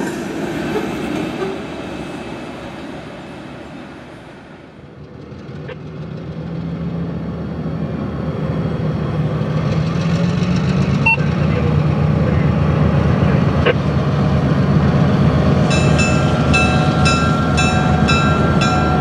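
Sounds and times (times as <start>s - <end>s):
locomotive diesel engine drone: 3.8s - 19.0s.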